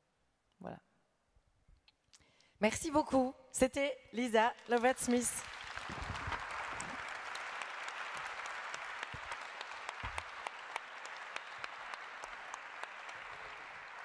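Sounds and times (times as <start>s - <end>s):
audience applauding: 4.8s - 14.0s.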